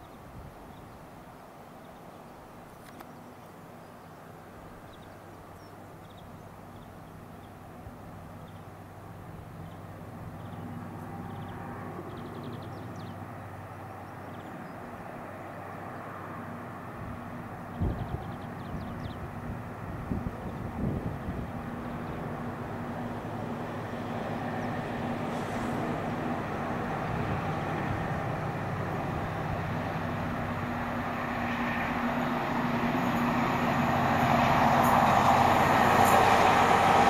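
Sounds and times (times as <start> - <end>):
small birds chirping: 1.8 - 7.7, 9.6 - 15.0, 17.5 - 19.5
diesel locomotive engine drone: 3.5 - 37.0.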